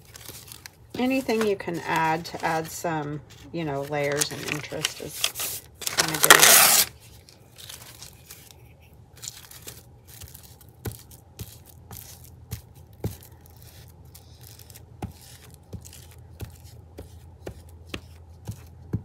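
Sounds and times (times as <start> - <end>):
tissue paper rustling: 0.0 - 12.3.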